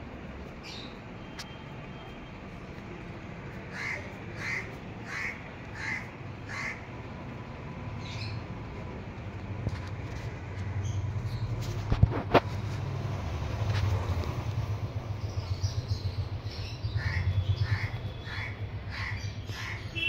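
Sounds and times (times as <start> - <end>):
crow cawing: 3.7 - 6.9, 17.0 - 19.9.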